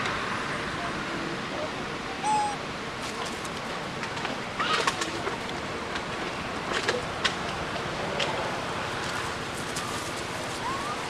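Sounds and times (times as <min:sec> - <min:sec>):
animal call: 0:02.2 - 0:02.6.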